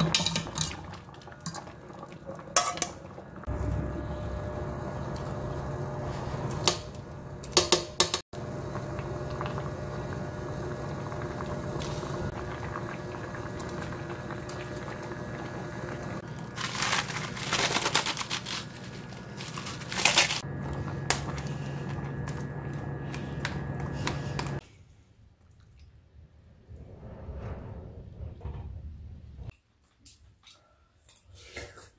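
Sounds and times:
vegetables clattering into a pot: 0.0 - 1.7
induction cooktop hum: 0.0 - 24.8.

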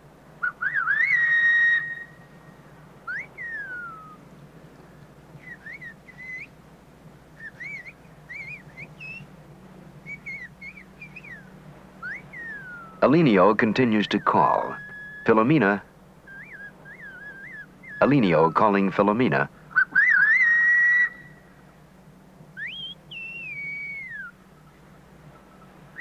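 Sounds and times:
faint whistled phrases: 0.4 - 4.2, 5.4 - 6.6, 7.4 - 9.3, 10.0 - 18.9, 22.6 - 24.4
loud whistled call: 0.4 - 4.2, 5.4 - 6.6, 7.4 - 9.3, 10.0 - 19.0, 19.7 - 21.5, 22.5 - 24.7.

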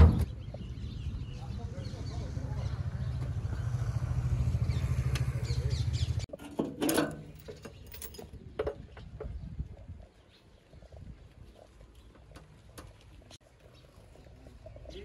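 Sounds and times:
keys jingling: 6.8 - 8.3.

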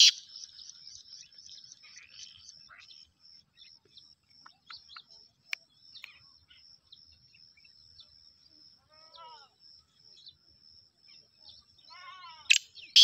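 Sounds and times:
faint bird chirps: 0.0 - 13.0.

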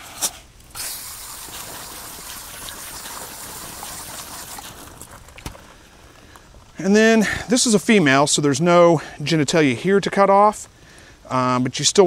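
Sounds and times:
hose nozzle spraying water: 0.0 - 5.6
water splashing: 0.7 - 6.2.

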